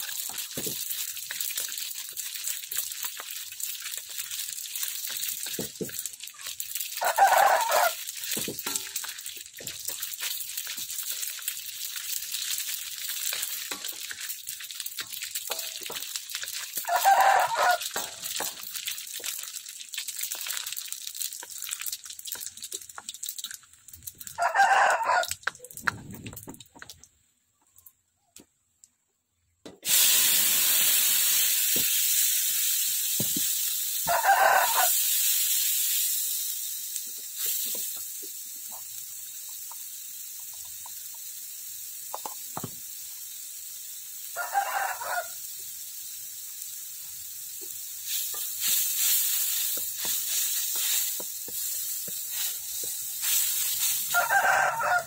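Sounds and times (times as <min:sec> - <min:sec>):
food sizzling in hot oil: 0:00.0 - 0:25.9, 0:29.8 - 0:55.0
rooster crowing: 0:07.0 - 0:08.0, 0:16.8 - 0:17.9, 0:24.4 - 0:25.4, 0:34.1 - 0:35.0, 0:44.4 - 0:45.4, 0:54.1 - 0:55.0.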